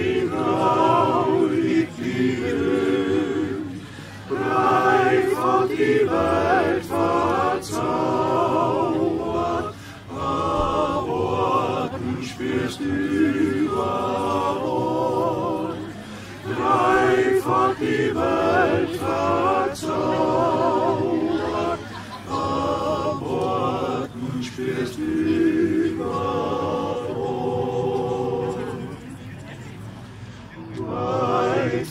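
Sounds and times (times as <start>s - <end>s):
male choir singing a cappella: 0.0s - 29.2s, 30.6s - 31.9s.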